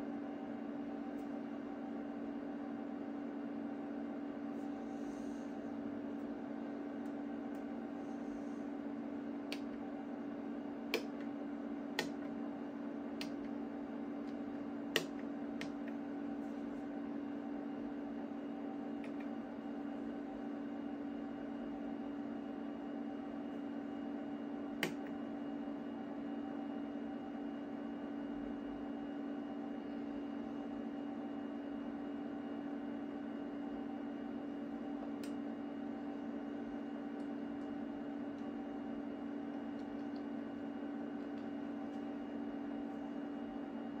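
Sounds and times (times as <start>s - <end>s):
cooling fans humming: 0.0s - 44.0s.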